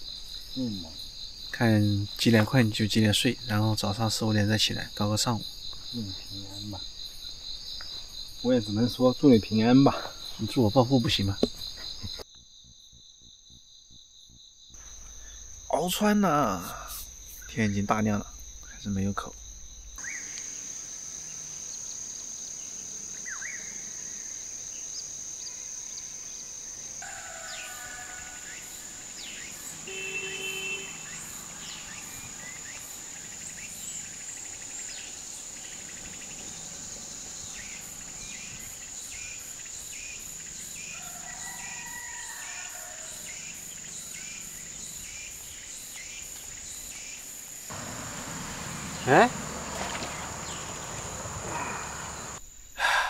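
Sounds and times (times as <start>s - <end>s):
high-pitched insect drone: 0.0s - 53.0s
bird calls: 47.7s - 52.4s.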